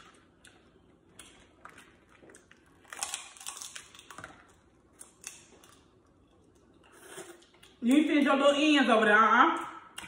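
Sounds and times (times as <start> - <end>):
crab shells cracking: 2.4 - 5.9.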